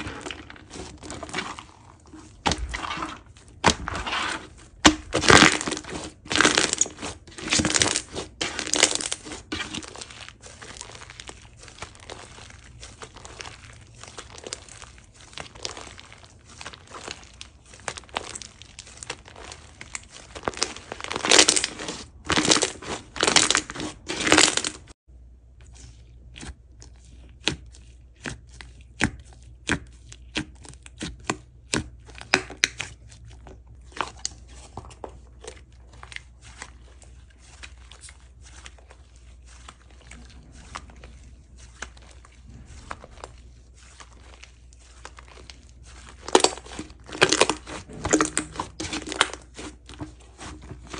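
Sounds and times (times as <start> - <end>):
slime crackling and popping: 0.0 - 24.9, 35.4 - 50.9.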